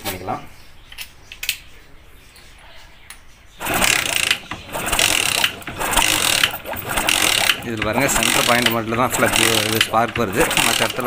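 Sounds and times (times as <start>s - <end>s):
motorcycle engine cranking: 3.6s - 11.0s.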